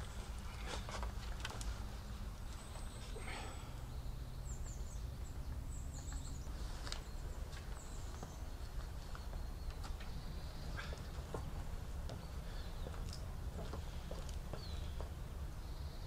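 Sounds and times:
small bird chirping: 0:02.5 - 0:13.2.

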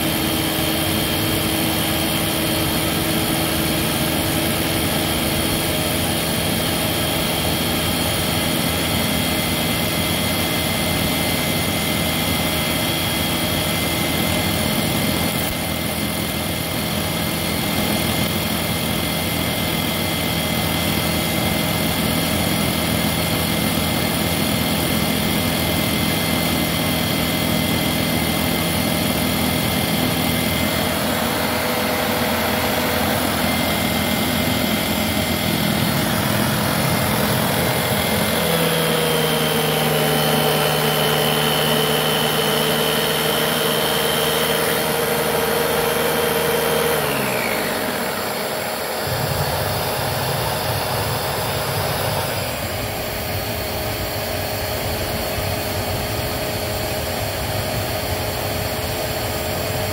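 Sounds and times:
vacuum cleaner running: 0:00.0 - 0:59.9.

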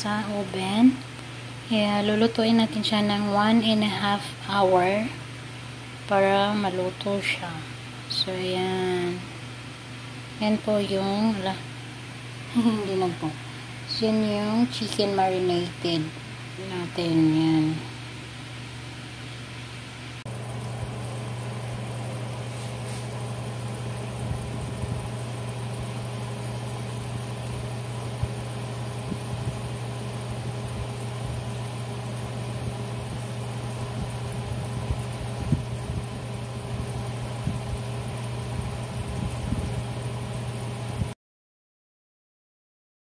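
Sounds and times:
oven fan humming: 0:00.0 - 0:41.2.

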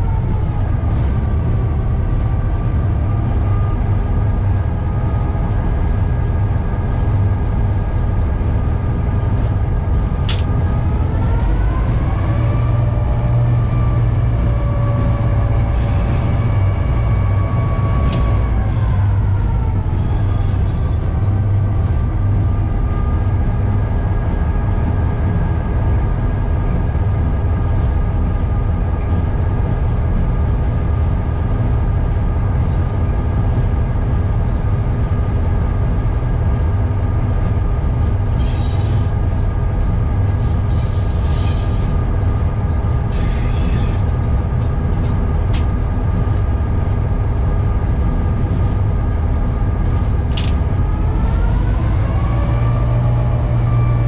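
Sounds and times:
wheels squealing on rails: 0:00.0 - 0:08.6, 0:10.1 - 0:24.3, 0:37.5 - 0:45.7, 0:47.9 - 0:54.0
diesel locomotive engine running: 0:00.0 - 0:54.0.

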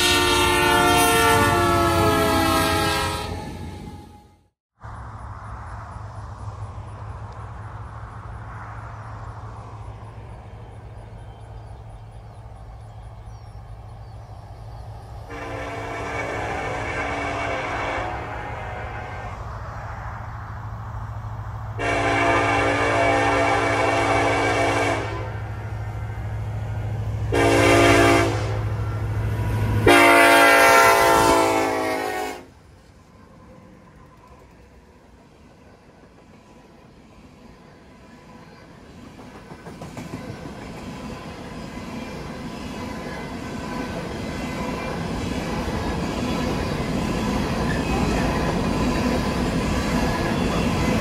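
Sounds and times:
locomotive horn blast: 0:00.0 - 0:04.5, 0:15.3 - 0:19.5, 0:21.8 - 0:25.6, 0:27.3 - 0:32.5
train rumble: 0:00.0 - 0:51.0.

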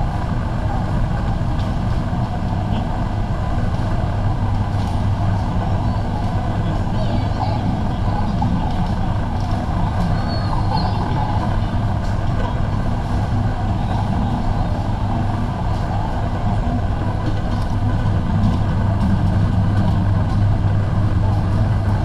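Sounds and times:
indistinct shopper chatter: 0:00.0 - 0:22.0
low mechanical hum: 0:00.0 - 0:22.0.

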